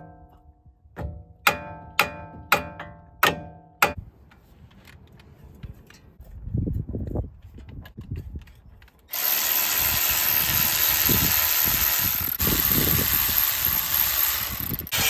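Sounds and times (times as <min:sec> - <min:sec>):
cordless power tool running: 0:09.1 - 0:15.0.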